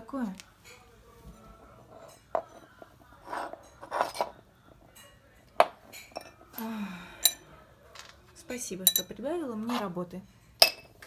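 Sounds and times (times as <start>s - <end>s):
ceramic shards clinking: 3.3s - 6.6s, 7.2s - 7.4s, 8.8s - 9.2s, 10.4s - 11.0s.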